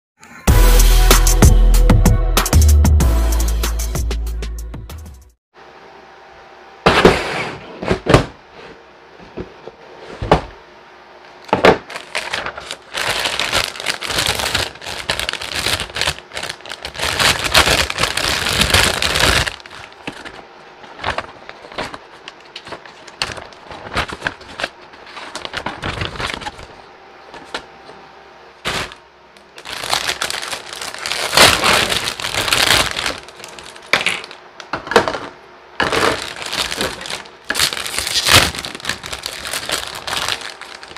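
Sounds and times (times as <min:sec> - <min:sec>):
paper and plastic bags crinkling: 0:11.6 - 0:26.8, 0:28.6 - 0:35.2, 0:35.8 - 0:40.9.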